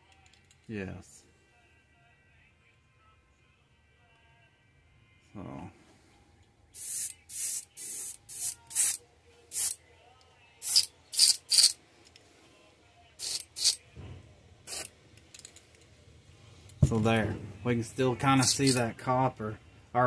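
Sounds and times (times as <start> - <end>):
airbrush hissing bursts: 6.8 - 9.8, 10.6 - 11.8, 13.2 - 13.8, 14.7 - 14.9.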